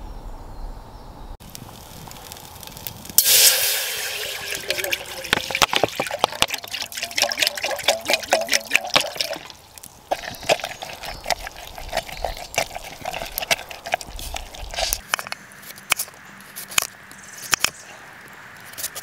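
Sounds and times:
water pouring into metal pot: 1.7 - 15.0
spoon scraping metal pot: 3.2 - 15.3.

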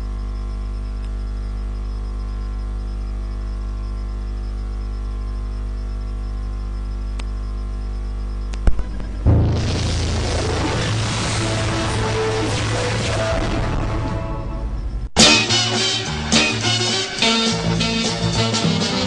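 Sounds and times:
electrical mains hum: 0.0 - 12.4
sharp clicks: 8.5 - 9.2
loud music: 8.7 - 19.0.

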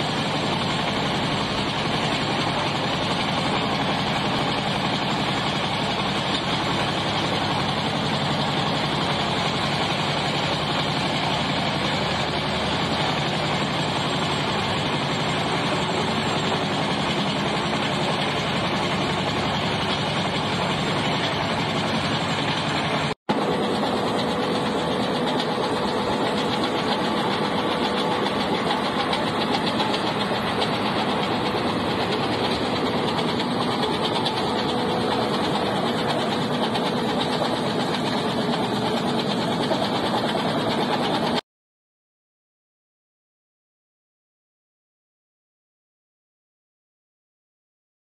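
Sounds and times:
excavator diesel engine running: 0.0 - 41.4
crusher bucket grinding rock: 23.9 - 41.2.

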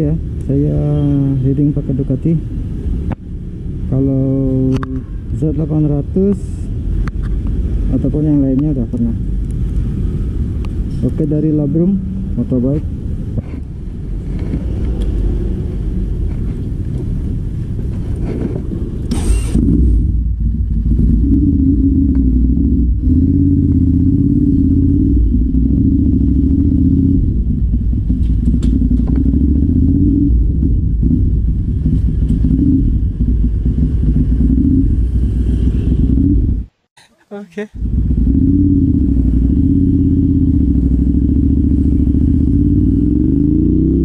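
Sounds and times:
motorcycle engine riding off: 14.0 - 36.7, 37.8 - 44.0.

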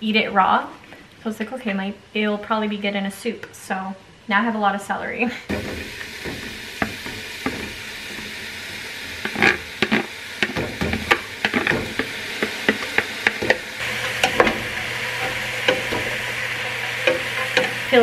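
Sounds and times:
vegetables sizzling in a pot: 5.5 - 18.0
wooden utensils scraping a pot: 5.5 - 18.0.

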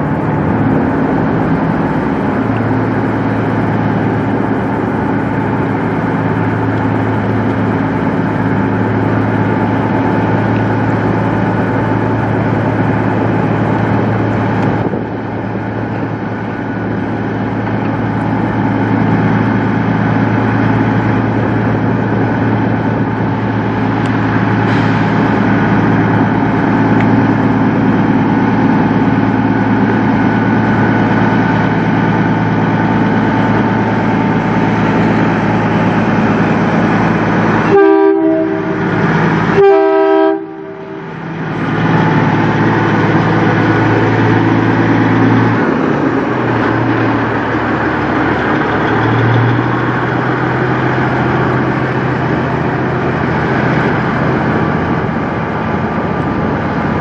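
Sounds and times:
truck diesel engine running: 0.0 - 57.0
truck horn blasts: 37.5 - 41.2.

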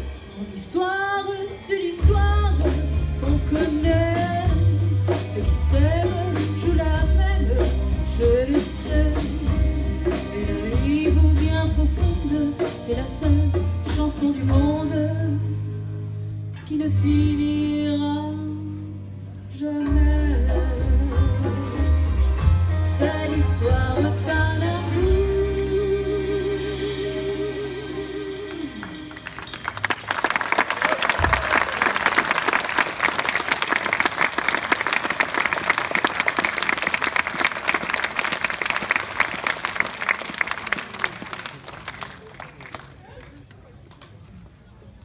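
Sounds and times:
jazz band playing: 0.0 - 42.0
audience applause: 28.8 - 44.0.

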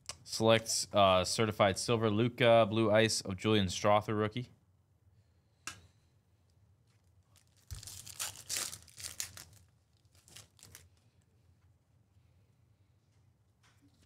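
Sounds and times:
wrapper ripping and crinkling: 7.3 - 11.2.

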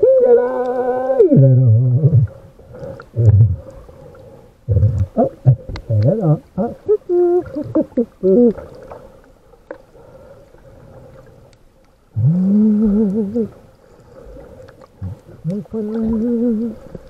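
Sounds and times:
person humming into snorkel: 0.0 - 3.8, 4.7 - 8.7, 12.2 - 13.7, 15.0 - 17.0.

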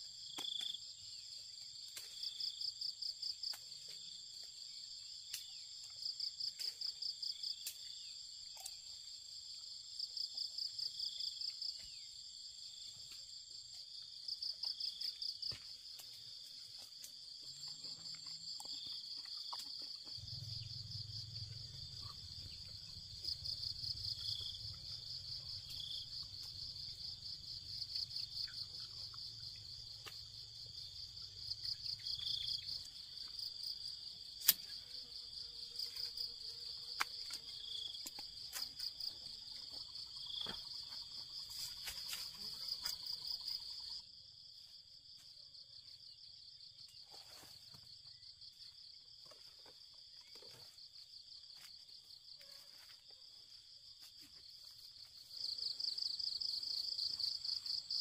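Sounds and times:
insects chirring: 0.0 - 58.0
pruning shears snipping: 34.4 - 34.7.

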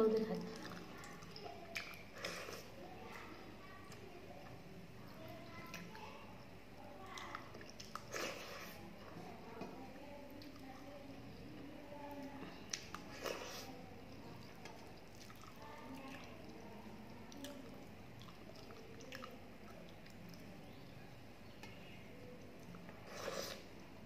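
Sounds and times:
wet squelches: 0.1 - 4.1, 12.6 - 20.8
chewing: 0.4 - 9.3, 12.1 - 20.6.

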